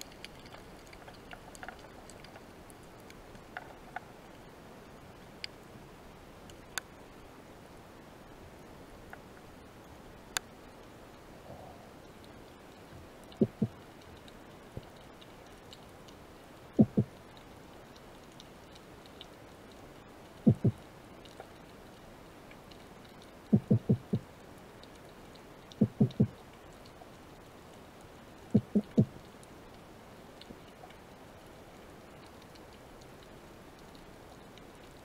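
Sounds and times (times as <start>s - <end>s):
faint scattered ticking: 12.0s - 35.0s
dull knocks underwater: 13.4s - 13.8s, 16.8s - 17.1s, 20.5s - 20.8s, 23.5s - 24.2s, 25.8s - 26.3s.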